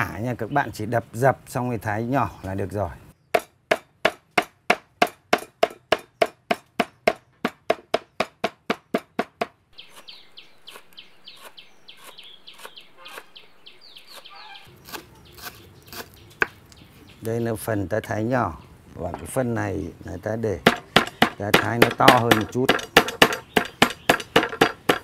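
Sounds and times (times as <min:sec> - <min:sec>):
birds calling: 0:00.0 - 0:25.0
cleaver chopping on wooden board: 0:03.4 - 0:09.6, 0:20.7 - 0:25.0.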